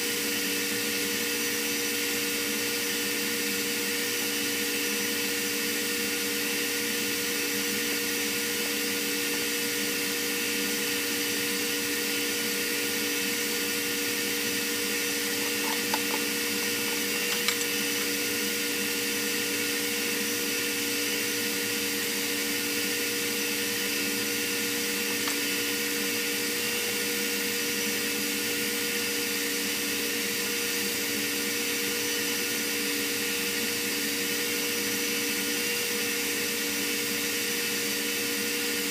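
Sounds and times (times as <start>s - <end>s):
constant hum tones: 14.5s - 18.6s.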